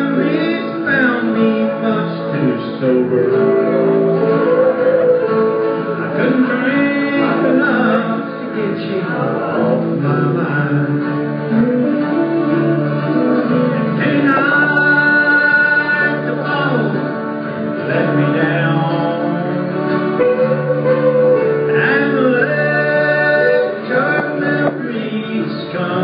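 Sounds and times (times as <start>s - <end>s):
acoustic guitars strummed: 0.0s - 26.0s
people singing along: 3.8s - 8.3s, 20.2s - 26.0s.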